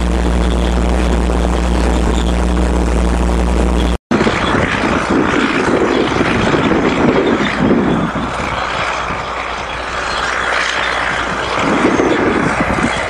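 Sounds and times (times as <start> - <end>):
tractor diesel engine under load: 0.0 - 4.0.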